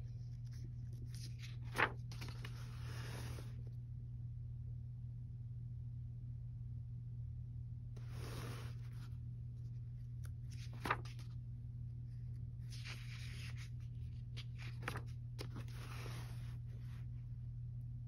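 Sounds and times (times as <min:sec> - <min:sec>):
paper pages rustling: 0:00.0 - 0:03.7, 0:08.0 - 0:11.4, 0:12.3 - 0:17.1
steady low hum: 0:00.0 - 0:18.0
paper flicks: 0:10.2 - 0:11.3.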